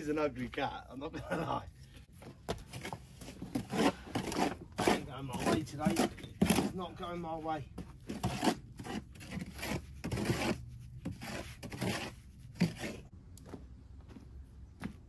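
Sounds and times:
rough scraping on hard surface: 2.6s - 13.1s.

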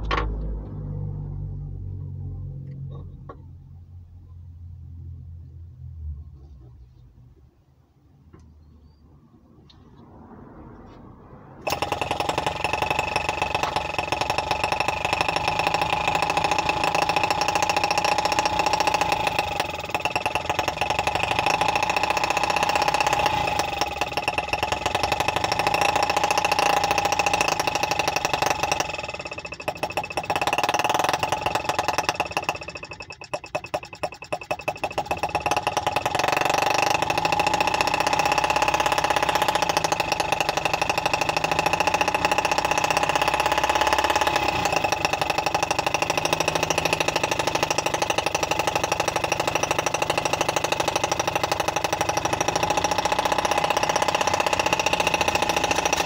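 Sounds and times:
model engine high buzzing whine: 11.6s - 56.0s.

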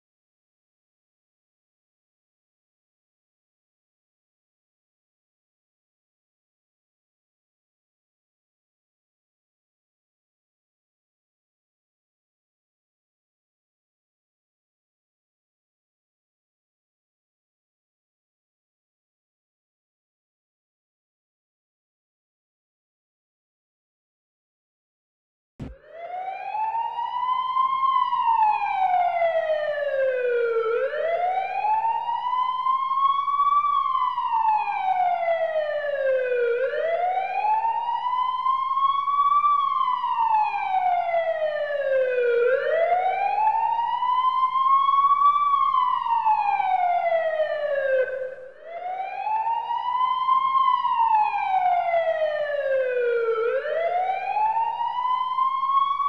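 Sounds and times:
emergency siren wailing: 25.6s - 56.0s.

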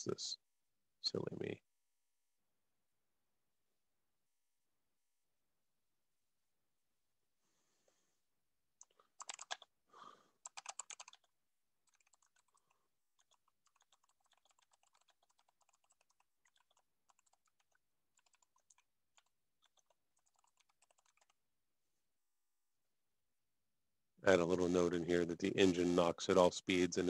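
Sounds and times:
computer keyboard typing: 8.8s - 9.8s, 10.4s - 21.4s.

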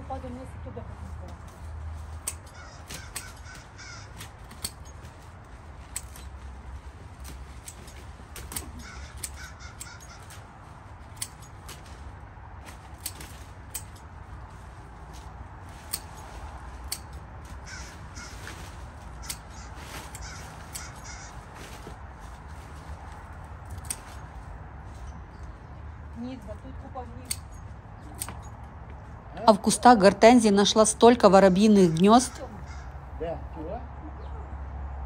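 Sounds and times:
pruning shears snipping: 1.4s - 21.9s, 23.0s - 24.4s, 26.4s - 28.6s.

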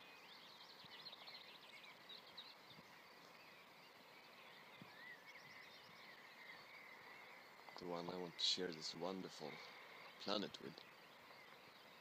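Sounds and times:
faint birds chirping: 0.0s - 12.0s.

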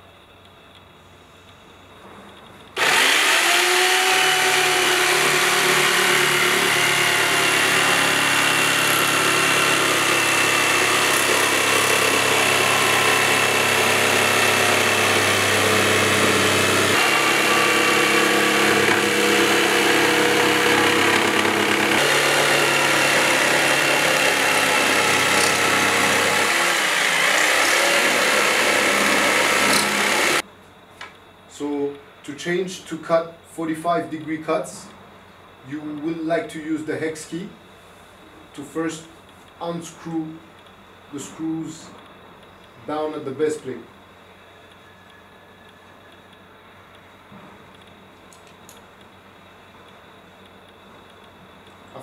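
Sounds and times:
jigsaw cutting wood: 2.8s - 30.4s.

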